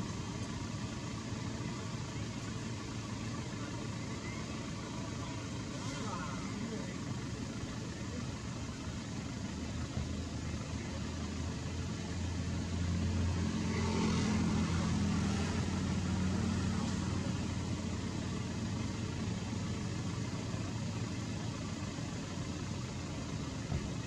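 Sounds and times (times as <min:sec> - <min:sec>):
vehicle engine rumble: 0:00.0 - 0:24.0.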